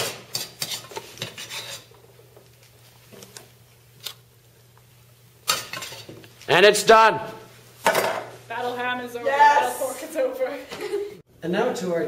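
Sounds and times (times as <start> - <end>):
knife and utensils clattering: 0.0 - 1.9, 5.5 - 6.2.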